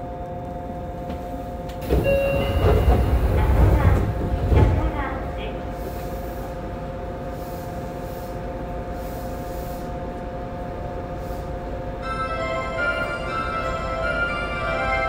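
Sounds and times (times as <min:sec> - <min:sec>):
subway car rumble and hum: 0:00.0 - 0:15.0
chime tune: 0:12.0 - 0:15.0.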